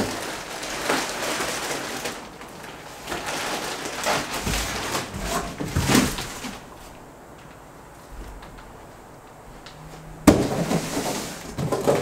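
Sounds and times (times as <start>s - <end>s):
plastic wrap crinkling: 0.0s - 12.0s
cardboard box scraping and knocking: 4.1s - 6.6s, 10.2s - 12.0s.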